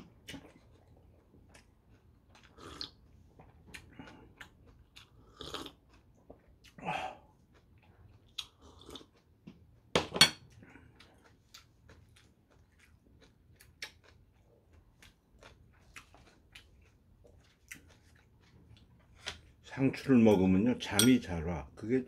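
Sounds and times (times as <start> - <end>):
mouth sounds while eating: 6.5 - 9.2.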